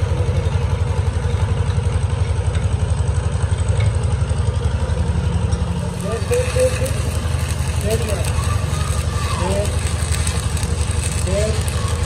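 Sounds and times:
machinery throbbing: 0:05.6 - 0:12.0.

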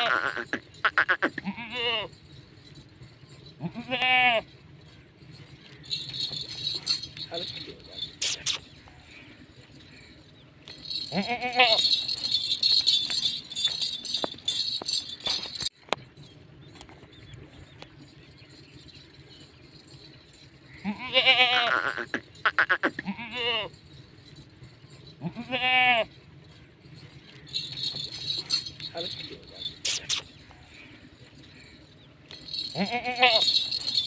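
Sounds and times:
goat bleating: 0:00.0 - 0:02.1, 0:03.6 - 0:04.4, 0:11.1 - 0:11.8, 0:20.8 - 0:23.7, 0:25.2 - 0:26.1, 0:32.7 - 0:33.5
high jingling: 0:00.0 - 0:34.0.

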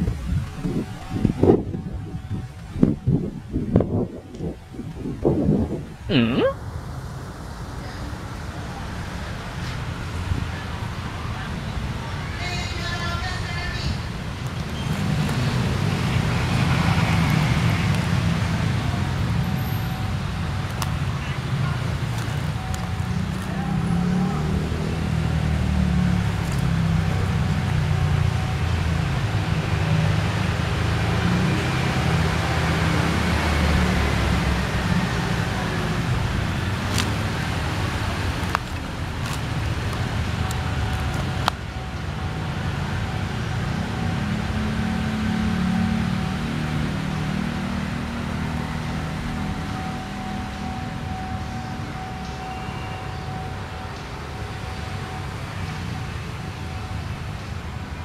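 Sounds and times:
car engines: 0:00.0 - 0:58.0
motorcycle engines: 0:00.0 - 0:58.0
road traffic rumble: 0:00.0 - 0:58.0
tyre noise: 0:35.4 - 0:41.5.

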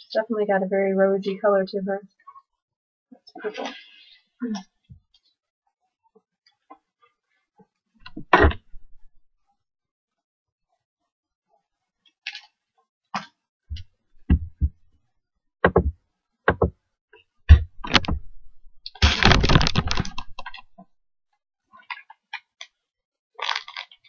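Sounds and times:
rustling packaging: 0:18.9 - 0:20.7, 0:23.4 - 0:24.0.

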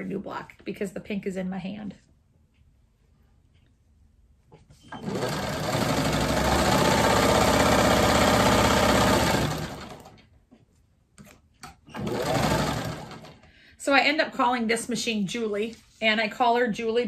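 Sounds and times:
sewing machine running: 0:05.0 - 0:10.2, 0:11.9 - 0:13.4.

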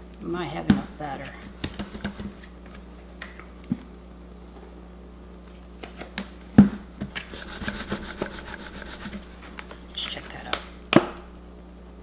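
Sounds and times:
plastic bowl scraping rattle: 0:07.3 - 0:09.5.

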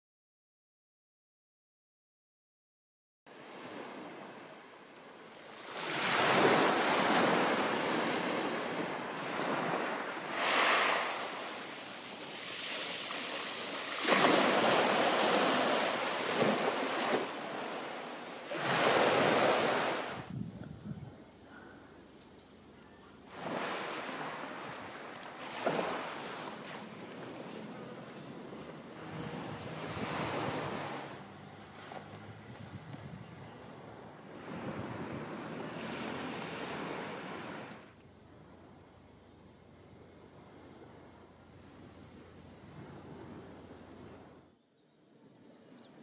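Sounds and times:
waves breaking on pebble beach: 0:05.6 - 0:20.3, 0:23.3 - 0:31.2.

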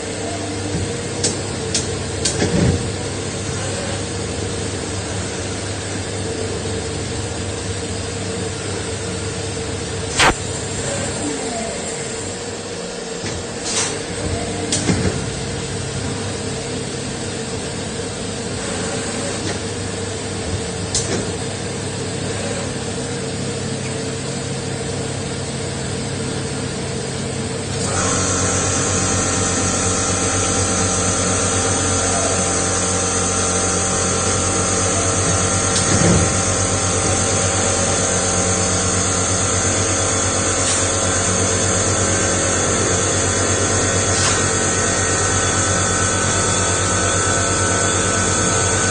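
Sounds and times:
lathe machine hum: 0:27.7 - 0:48.9
high machine whine: 0:27.8 - 0:48.9.

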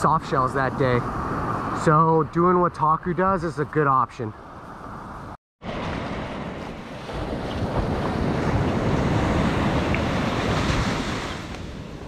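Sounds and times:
surf washing up a beach: 0:00.0 - 0:02.2, 0:05.6 - 0:12.0
wind buffeting microphone: 0:00.0 - 0:03.8, 0:04.4 - 0:12.0.

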